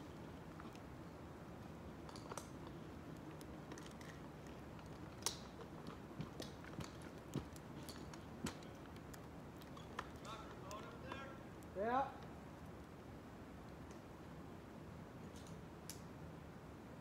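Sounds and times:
small sharp clicks and snaps: 2.1 - 13.0, 13.6 - 14.0, 15.3 - 16.1.

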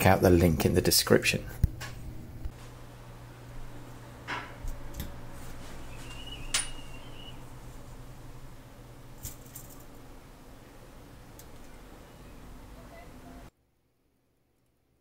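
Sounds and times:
steady low hum: 0.0 - 13.5.

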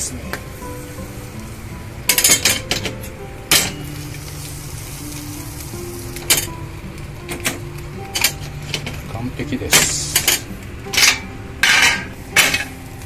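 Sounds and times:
sandwich sizzling: 0.0 - 13.0
metal pan clanking: 2.0 - 3.9, 7.3 - 12.8.

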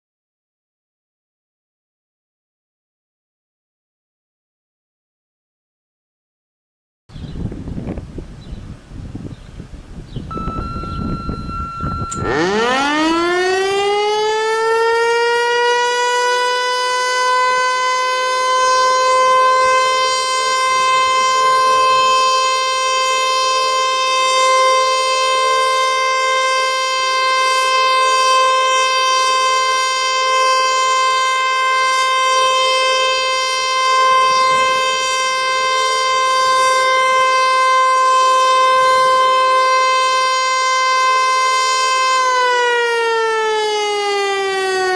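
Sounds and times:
faint steady tone: 10.3 - 12.3
mechanical fire siren wailing: 10.3 - 44.9.

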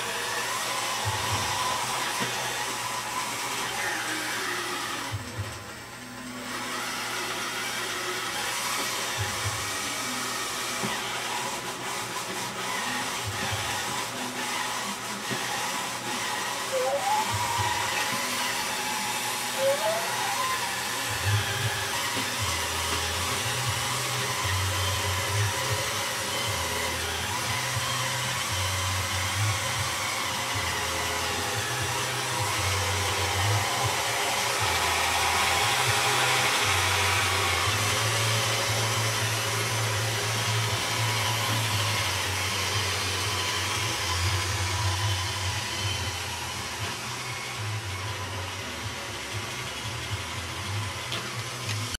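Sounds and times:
robot vacuum motor hiss: 6.4 - 51.9
short rising squeaks: 16.7 - 18.3.

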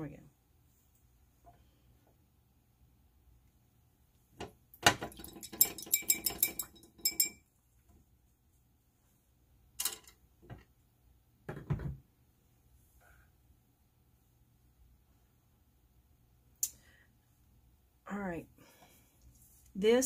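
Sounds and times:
knocks and clinks: 4.8 - 7.4
paintbrush clinking in glass jar: 5.1 - 7.5.

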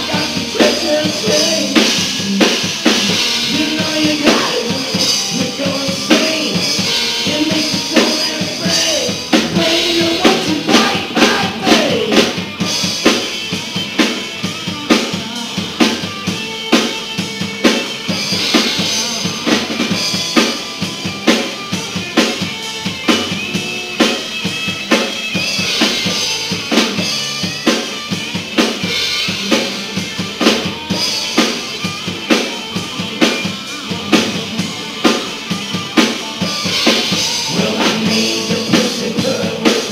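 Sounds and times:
person singing: 0.0 - 12.4, 14.7 - 17.0, 18.4 - 20.8, 37.0 - 39.9
drum kit beat: 0.0 - 39.9
electric guitar: 0.0 - 39.9.

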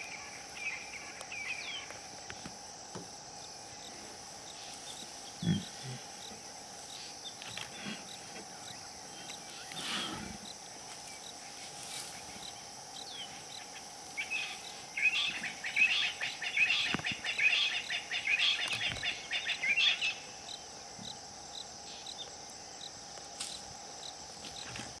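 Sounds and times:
insects humming: 0.0 - 25.0.

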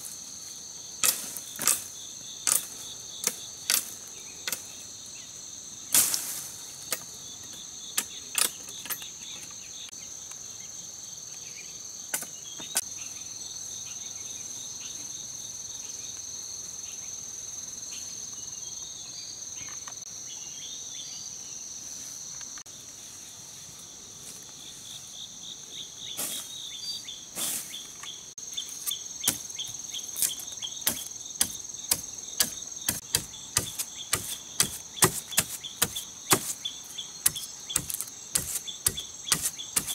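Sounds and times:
insect chorus: 0.0 - 39.9
machete chopping sapling: 1.0 - 4.6, 28.8 - 39.9.

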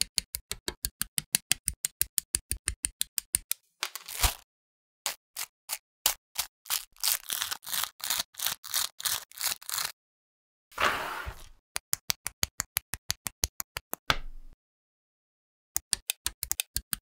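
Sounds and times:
scissors cutting plastic bag: 3.9 - 4.4, 6.1 - 9.9
sharp plastic clicks: 15.8 - 17.0.

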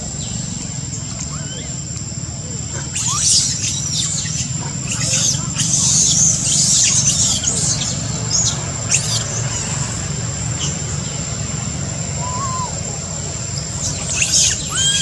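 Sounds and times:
rising-and-falling call: 12.1 - 13.0, 14.3 - 15.0.

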